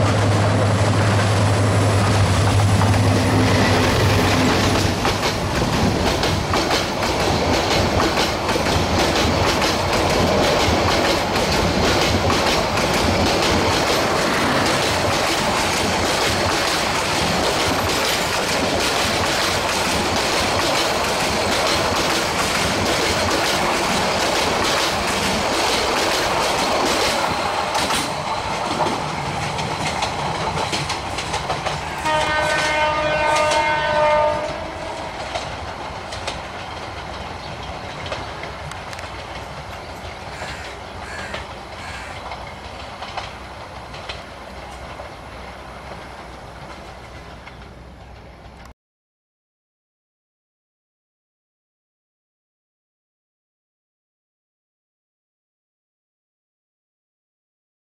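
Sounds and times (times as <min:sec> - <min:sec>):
train wheels clattering: 0:00.0 - 0:48.7
locomotive horn: 0:31.9 - 0:35.2.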